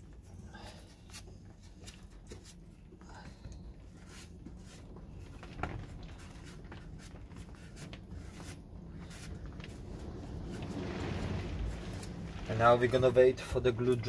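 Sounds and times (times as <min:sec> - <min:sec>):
cloth rubbing on wooden board: 0:03.9 - 0:13.1.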